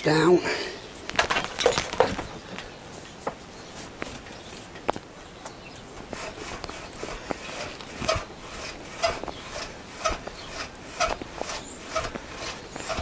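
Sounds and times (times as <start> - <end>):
fork tubes squeaking in clamps: 6.1 - 13.0.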